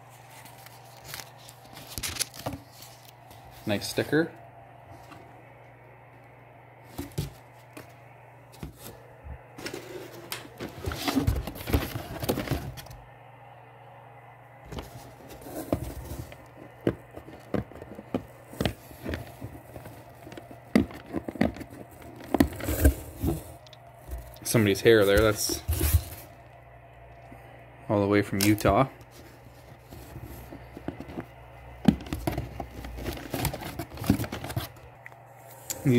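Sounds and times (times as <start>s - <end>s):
packing material rustling: 0.0s - 4.0s, 31.9s - 34.9s
low steady hum: 0.0s - 35.9s
items clicking and knocking: 14.7s - 24.5s, 29.9s - 34.8s.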